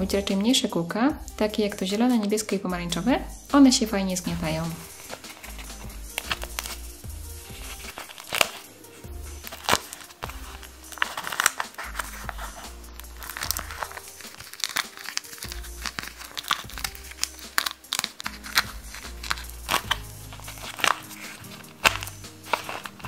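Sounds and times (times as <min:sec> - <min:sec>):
background music: 0:00.0 - 0:23.0
plastic popping and crinkling: 0:04.5 - 0:08.7, 0:09.4 - 0:23.0.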